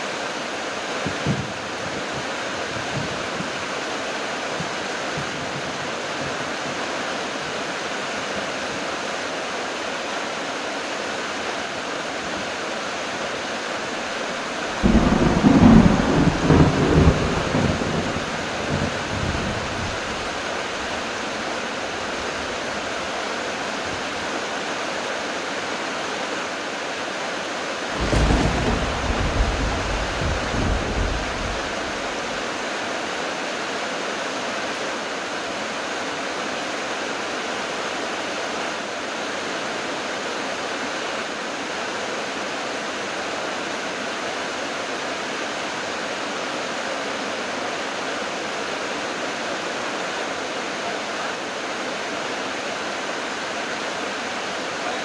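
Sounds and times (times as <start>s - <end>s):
heavy rain falling: 0.0s - 55.0s
thunder rumbling: 14.7s - 21.4s, 27.9s - 32.4s.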